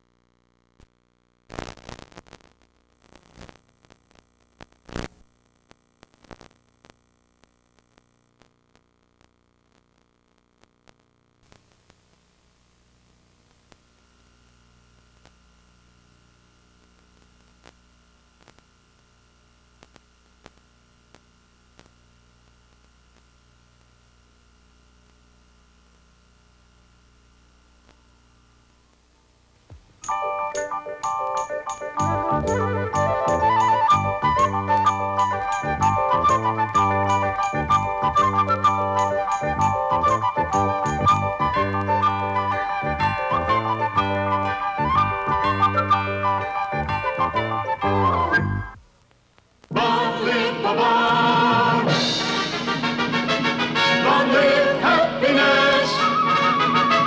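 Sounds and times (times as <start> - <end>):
crackling static: 0.0 - 57.0
tape playback hum and hiss: 0.0 - 57.0
faint clicks: 16.8 - 17.8, 18.4 - 19.1, 19.8 - 22.0.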